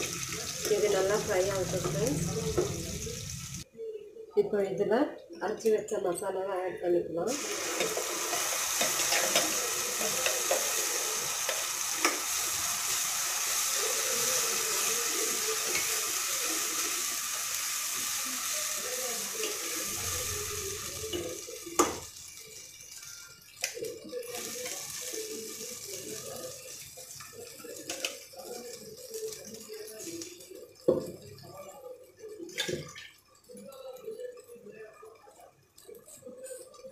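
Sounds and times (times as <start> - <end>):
paste sizzling in hot oil: 0.0 - 3.6, 7.3 - 30.0.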